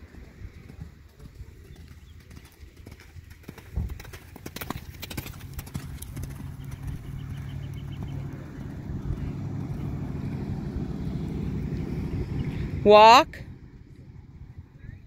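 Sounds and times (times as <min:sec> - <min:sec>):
horse hoofbeats on sand: 0:00.0 - 0:12.7
steady low hum: 0:05.2 - 0:15.0.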